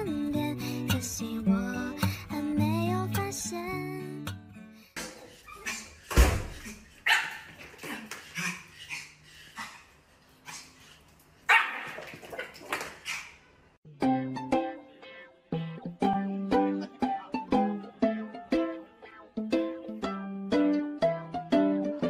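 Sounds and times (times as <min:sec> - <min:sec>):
small dog barking and yipping: 0:05.3 - 0:09.8, 0:11.5 - 0:13.4.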